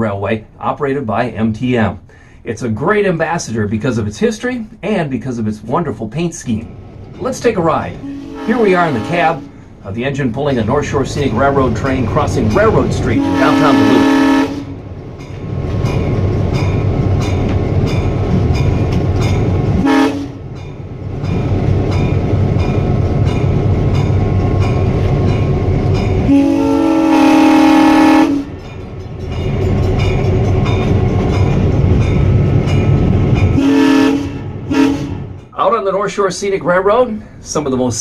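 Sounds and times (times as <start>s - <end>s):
locomotive air horn blasts: 8.0s - 9.7s, 13.0s - 14.8s, 19.8s - 20.4s, 26.2s - 28.6s, 33.6s - 35.3s.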